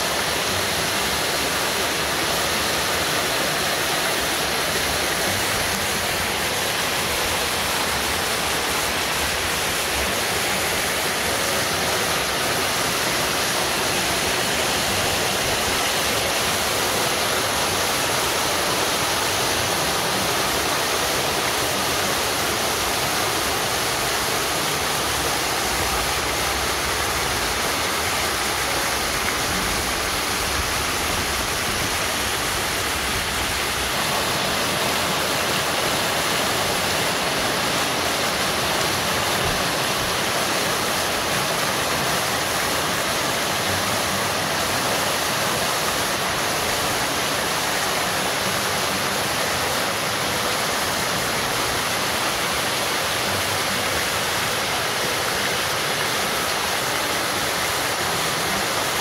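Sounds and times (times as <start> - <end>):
waterfall splashing into pool: 0.0 - 59.0.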